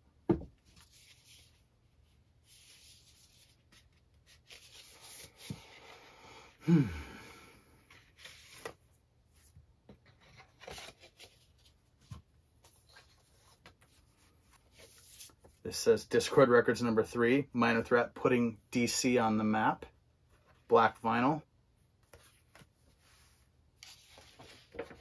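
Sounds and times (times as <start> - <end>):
paper rustling and sliding: 22.0 - 25.0.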